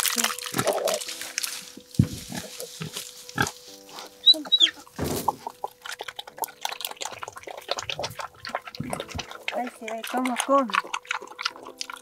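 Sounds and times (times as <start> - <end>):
pig chewing and slurping: 0.0 - 12.0
pig grunting: 0.5 - 1.0, 2.2 - 12.0.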